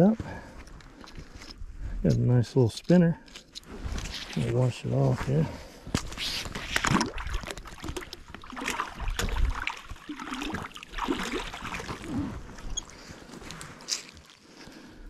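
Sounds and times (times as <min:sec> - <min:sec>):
water sloshing and splashing: 0:03.6 - 0:14.8.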